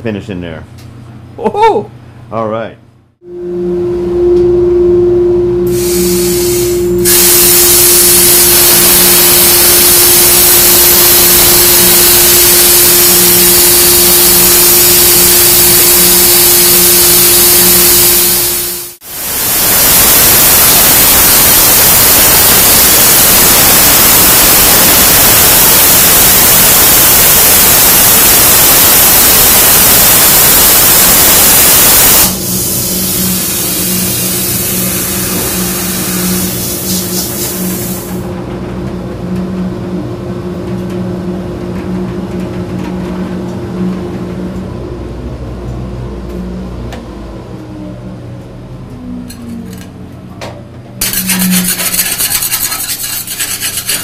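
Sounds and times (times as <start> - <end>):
plasma torch arc hissing: 5.7 - 38.2, 51.0 - 54.0.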